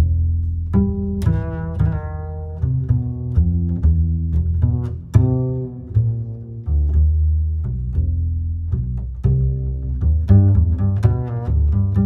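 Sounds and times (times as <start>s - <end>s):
plucked bass line music: 0.0s - 12.0s.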